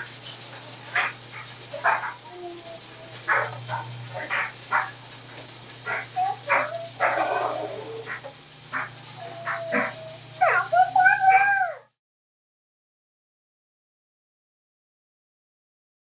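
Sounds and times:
dog whining and yipping: 1.8 - 3.8, 5.9 - 8.2, 8.8 - 11.8.

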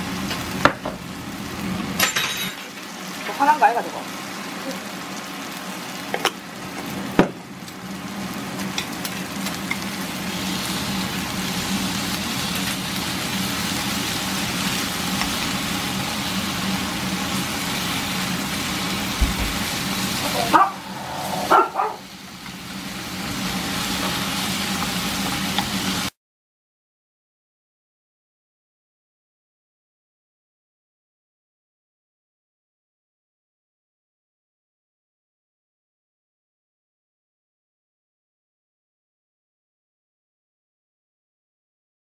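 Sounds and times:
fish skin sizzling in a pan: 2.6 - 26.1.

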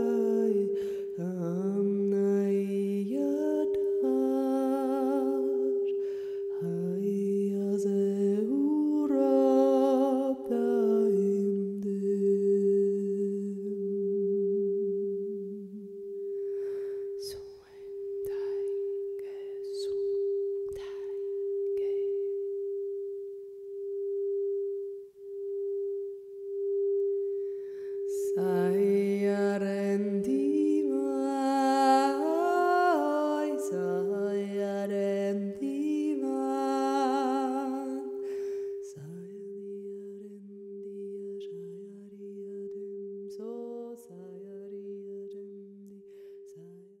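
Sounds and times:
person singing wordless melody: 0.0 - 14.3, 15.0 - 16.3, 17.2 - 22.6, 28.1 - 47.0
pulsing drone tone: 0.0 - 36.0.

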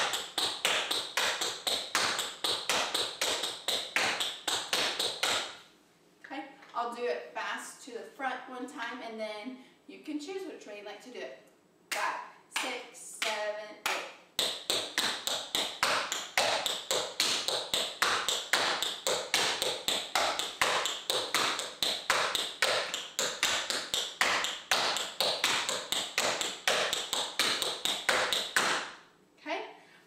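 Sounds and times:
tap shoes clicking on board: 0.0 - 5.5, 14.4 - 28.8.

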